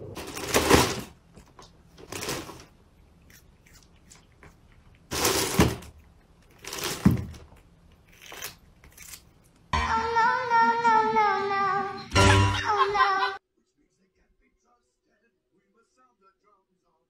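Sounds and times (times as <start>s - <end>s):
plastic bag rustling: 0.0s - 2.8s, 5.1s - 7.5s.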